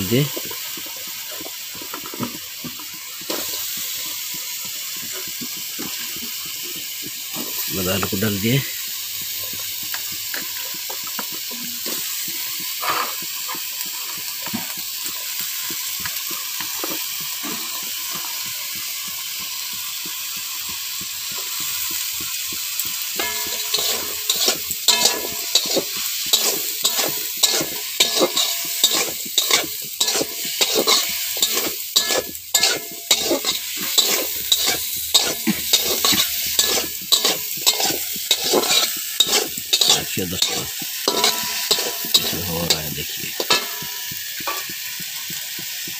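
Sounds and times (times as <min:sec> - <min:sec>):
potatoes sizzling in hot oil: 0:00.0 - 0:45.9
metal spatula scraping pan: 0:23.2 - 0:44.7.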